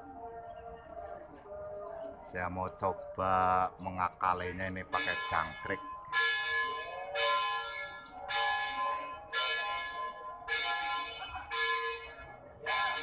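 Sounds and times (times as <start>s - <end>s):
bell ringing: 4.9s - 13.0s.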